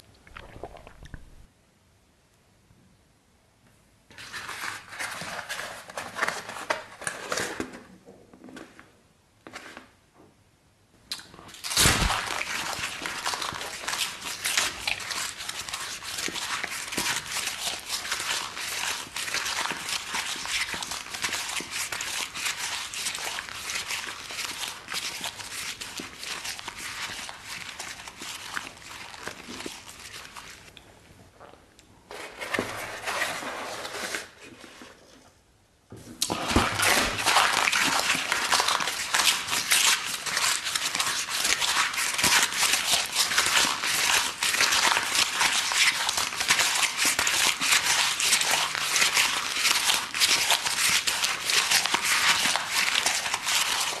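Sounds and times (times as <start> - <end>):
pizza crunching while chewed: 11.5 - 30.7, 36.2 - 54.0.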